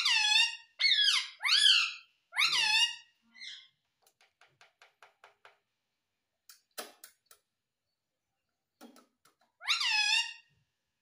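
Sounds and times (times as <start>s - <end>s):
loud parakeet call: 0.0s - 3.7s, 9.6s - 10.5s
parakeet harsh calls: 0.0s - 3.7s, 9.6s - 10.5s.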